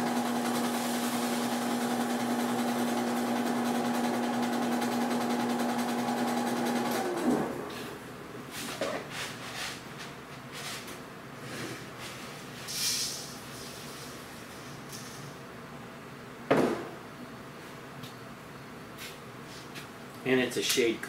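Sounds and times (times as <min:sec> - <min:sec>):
seed cleaner humming: 0:00.0 - 0:07.9.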